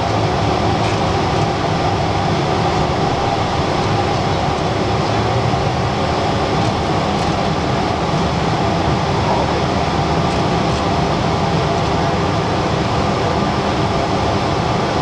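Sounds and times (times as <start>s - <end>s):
airflow over jet fuselage: 0.0s - 15.0s
jet engines humming: 0.0s - 15.0s.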